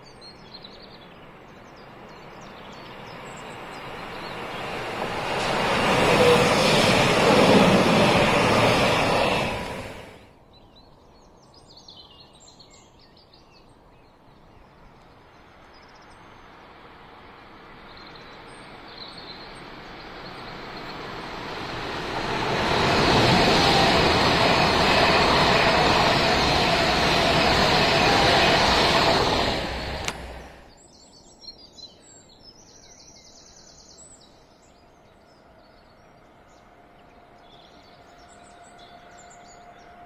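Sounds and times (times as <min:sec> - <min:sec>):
high-speed train passing: 0:00.2 - 0:10.5, 0:14.8 - 0:30.8, 0:34.9 - 0:40.0
departing train noise: 0:01.3 - 0:10.4, 0:16.4 - 0:30.8, 0:35.4 - 0:40.0.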